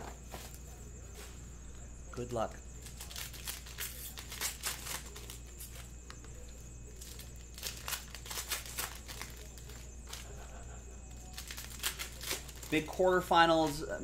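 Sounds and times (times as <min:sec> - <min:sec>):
foil wrapper crinkling: 0:02.8 - 0:14.0.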